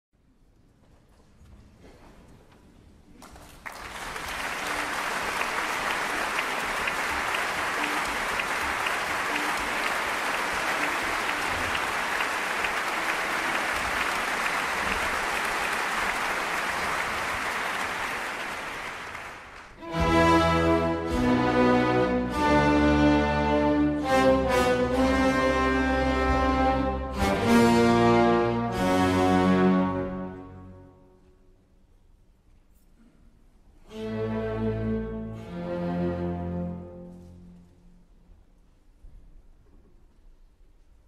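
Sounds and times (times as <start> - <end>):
audience applauding: 3.2 - 20.9.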